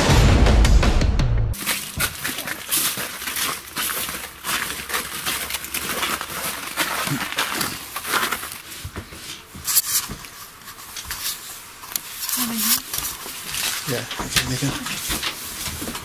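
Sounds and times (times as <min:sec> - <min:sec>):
footsteps crunching on snow: 0:01.6 - 0:11.7.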